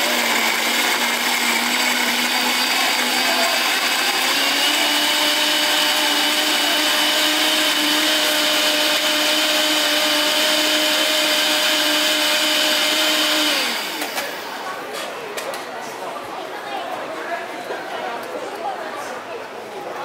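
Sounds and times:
blender whirring: 0.0 - 14.8.

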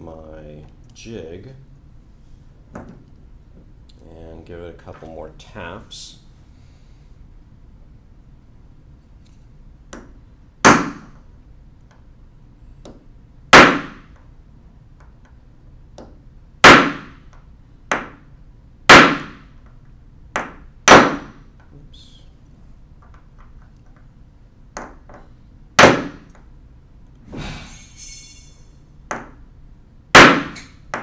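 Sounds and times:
hammer striking steel punch: 10.0 - 11.1, 13.6 - 14.1, 16.6 - 17.2, 18.9 - 19.4, 20.4 - 21.4, 25.8 - 26.3, 30.2 - 31.0.

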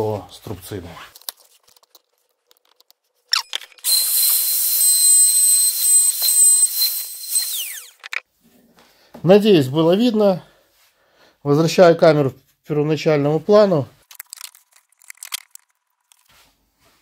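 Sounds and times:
hand router whining: 3.8 - 8.1.

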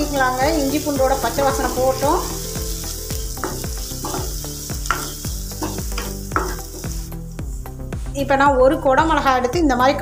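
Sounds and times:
onions sizzling in oil: 0.0 - 8.3
spatula scraping a pan: 1.1 - 7.0.

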